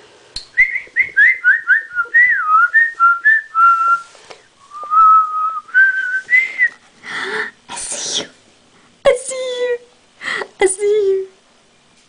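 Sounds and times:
person whistling a tune: 0.6 - 6.8.

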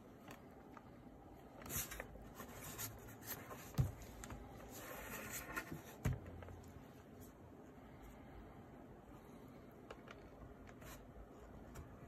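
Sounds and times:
camcorder body rubbing and scraping: 1.8 - 6.2.

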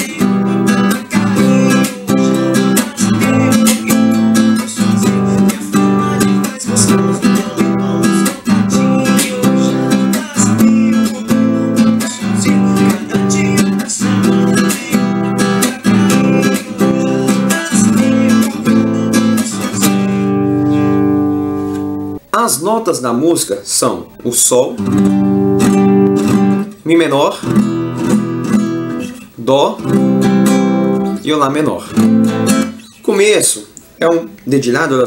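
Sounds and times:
percussive muted guitar strokes: 0.0 - 22.3
acoustic guitar strumming: 0.0 - 35.0.

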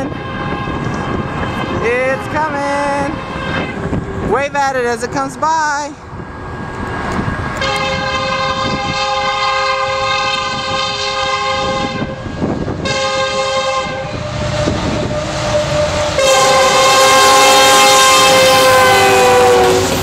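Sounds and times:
train air horn blasts: 0.0 - 1.9, 3.0 - 4.0, 7.6 - 20.0
train rumbling on rails: 0.0 - 20.0.

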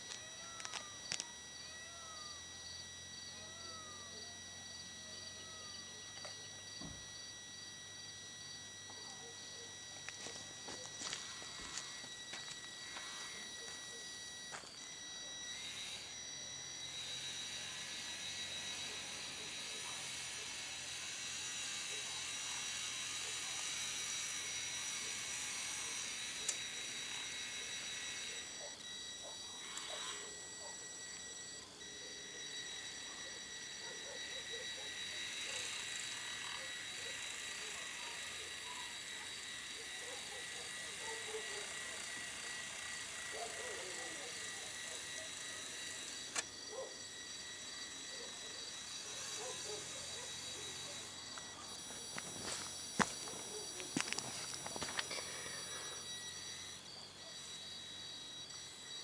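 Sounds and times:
clicks: 0.0 - 1.4
crickets trilling: 0.0 - 59.0
rising and falling insect call: 0.0 - 59.0
toy motor whining: 0.0 - 59.0.

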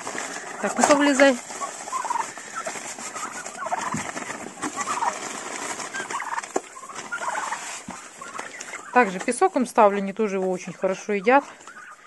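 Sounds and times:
young turkeys calling: 0.2 - 12.0.

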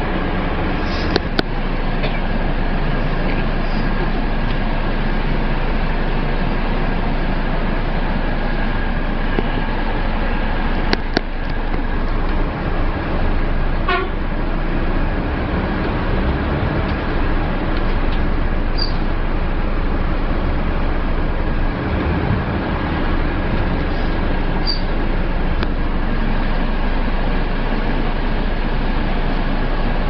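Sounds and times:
diesel engine idling: 0.0 - 30.0
horn toot: 13.8 - 14.2.

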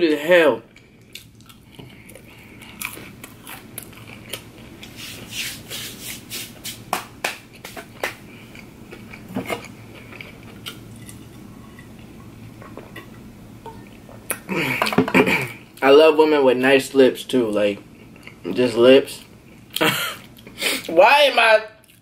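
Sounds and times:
chewing crunchy food: 0.6 - 5.0, 7.5 - 13.0.

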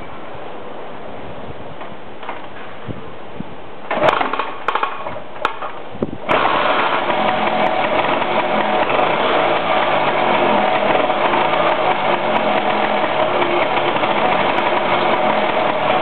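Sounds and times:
scooter engine starting and idling: 3.9 - 5.2, 6.2 - 16.0.

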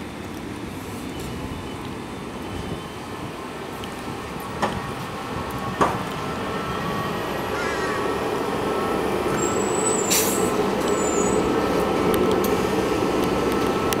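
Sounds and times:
bus engine droning: 0.0 - 14.0
air brake hiss: 9.4 - 11.4.

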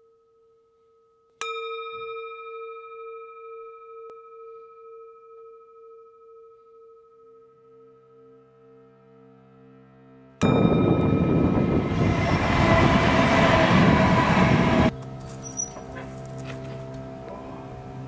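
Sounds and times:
low sustained musical tones: 0.0 - 18.0
bell-like strike ringing: 10.4 - 14.7.

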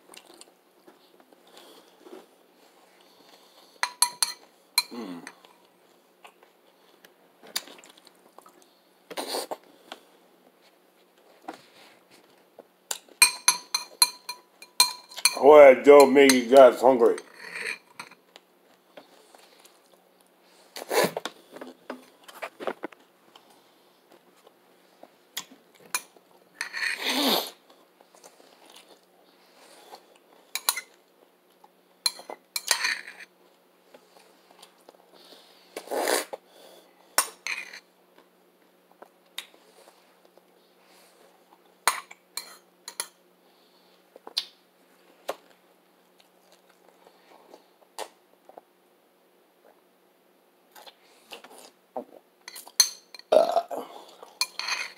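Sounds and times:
spoon clinking in ceramic bowl: 3.8 - 4.9, 13.2 - 15.4.

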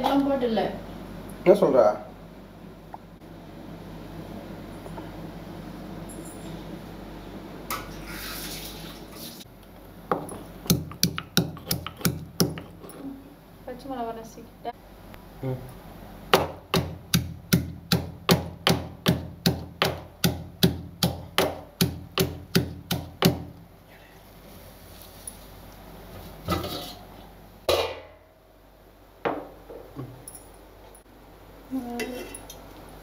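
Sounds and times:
stone pestle pounding in mortar: 10.6 - 12.8, 16.3 - 23.5.

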